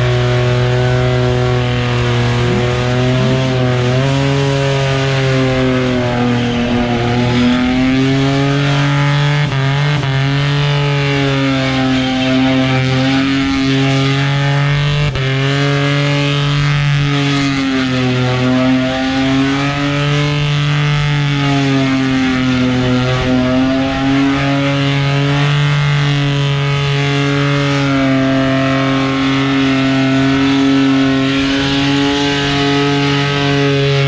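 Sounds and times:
car engine at high revs: 0:00.0 - 0:34.0.

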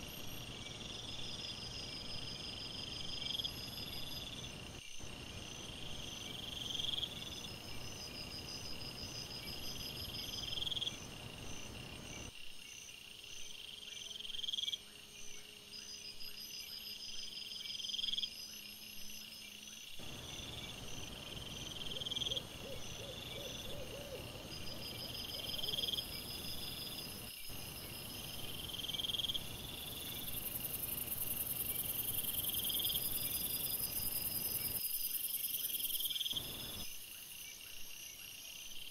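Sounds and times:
insect chirping: 0:00.0 - 0:38.9
insect pulsed trill: 0:13.7 - 0:37.6.

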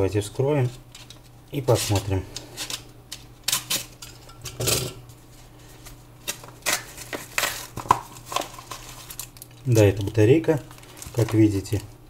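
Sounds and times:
packet rustling and crinkling: 0:05.7 - 0:11.9.

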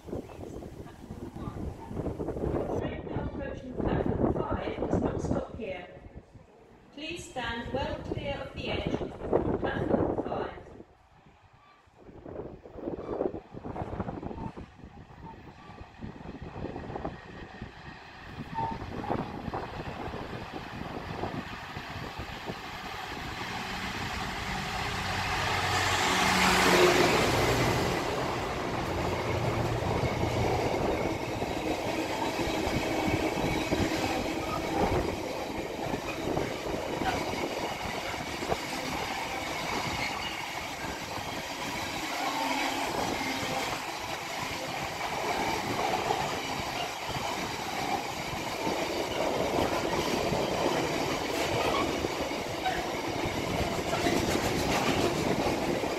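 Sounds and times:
train wheels rumbling on rails: 0:12.0 - 0:55.9
locomotive engine passing: 0:15.0 - 0:55.9.

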